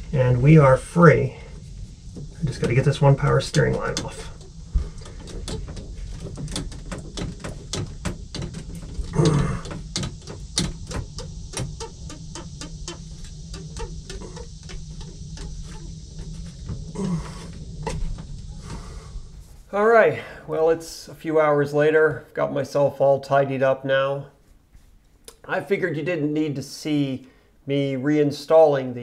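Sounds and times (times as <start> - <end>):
small clicks and knocks: 3.7 - 18.9.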